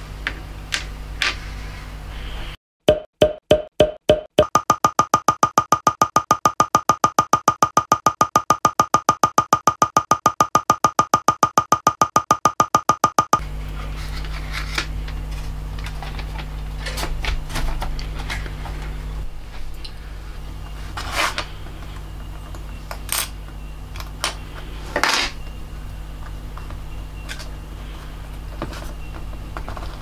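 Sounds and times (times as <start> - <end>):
low electrical hum: 0.0 - 2.6, 13.4 - 30.0.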